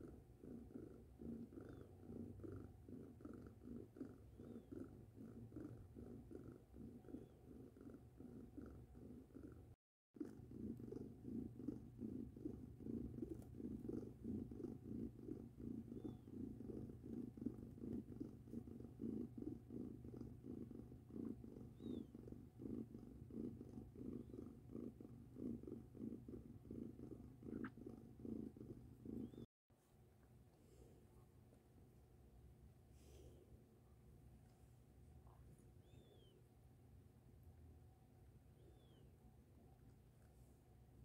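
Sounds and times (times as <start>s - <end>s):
cat purring: 0.0s - 29.5s, 34.4s - 36.4s.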